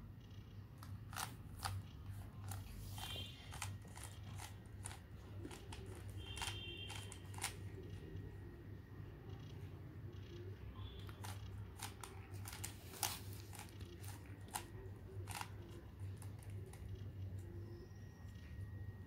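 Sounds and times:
steady low hum: 0.0s - 19.0s
puzzle cube clicking: 0.8s - 7.8s, 11.0s - 17.0s.

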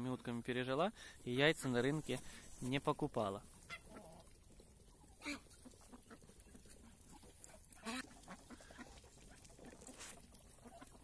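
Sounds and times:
ducks and turkeys calling: 3.3s - 11.0s.

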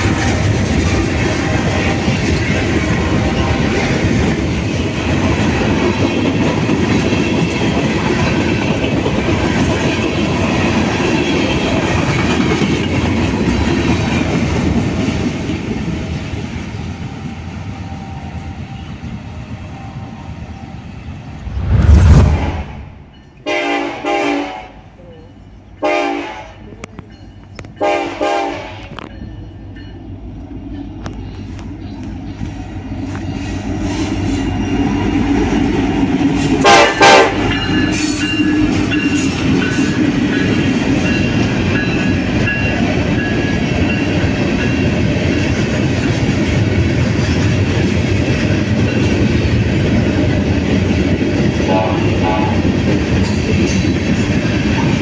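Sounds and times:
train wheels rumbling and clacking: 0.0s - 19.6s, 26.6s - 55.0s
locomotive air horn blasts: 23.4s - 24.8s, 25.8s - 26.6s, 27.8s - 29.0s, 36.6s - 37.5s, 51.7s - 52.6s.

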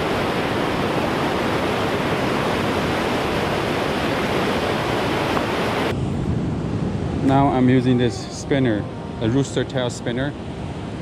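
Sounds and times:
stream rushing over boulders: 0.0s - 5.9s.

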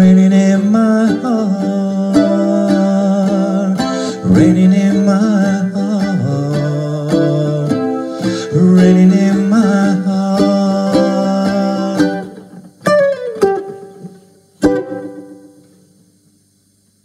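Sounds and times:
ukulele strumming: 0.0s - 16.0s.

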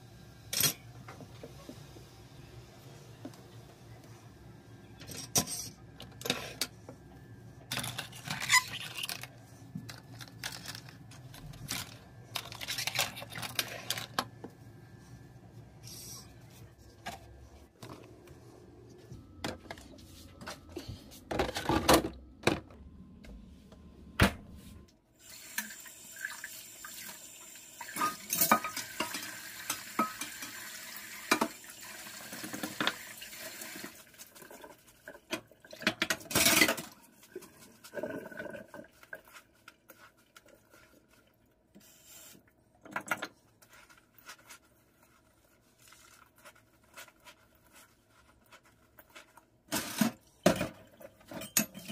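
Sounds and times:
dishes clinking: 50.4s - 51.9s.

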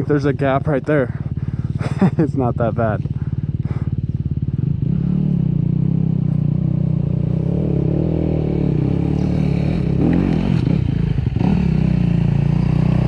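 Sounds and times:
dirt bike engine ticking over: 0.0s - 5.0s
dirt bike climbing a hill: 0.0s - 13.0s.

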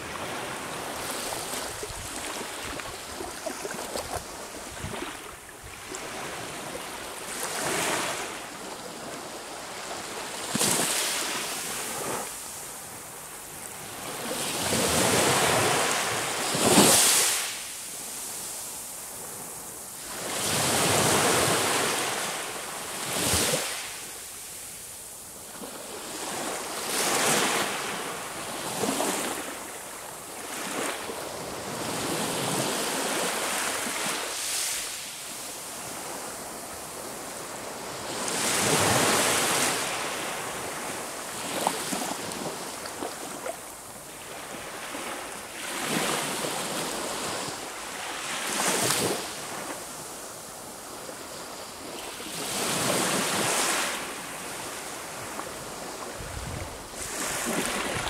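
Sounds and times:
sea waves breaking on shore: 25.5s - 35.1s, 51.8s - 58.0s.

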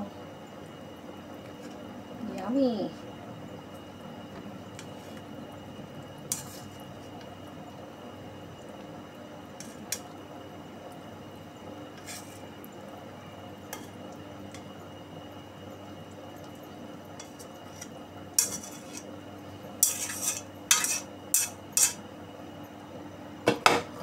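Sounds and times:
chopsticks scraping and clacking on wok: 6.3s - 6.7s, 12.0s - 12.4s, 17.2s - 19.1s, 19.8s - 22.0s.

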